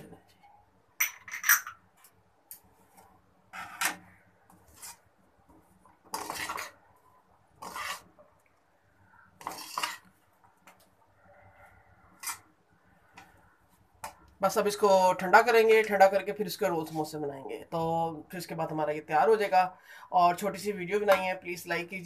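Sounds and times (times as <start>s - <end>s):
metal spatula scraping a wok: 4.6s - 5.1s, 6.1s - 6.8s, 7.6s - 8.2s, 9.4s - 10.1s, 12.1s - 12.5s.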